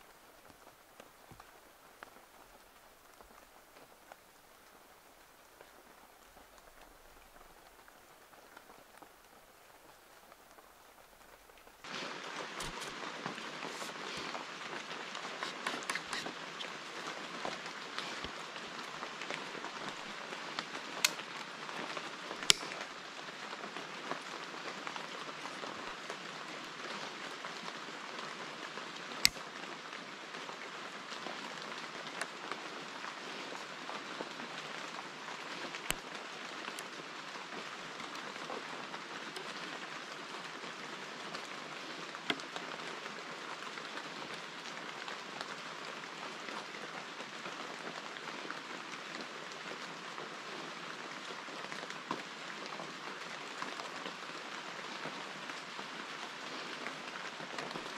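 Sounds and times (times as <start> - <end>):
bamboo strips clicking: 12.6 - 13.0, 15.4 - 16.4, 21.0 - 21.3, 22.4 - 22.8.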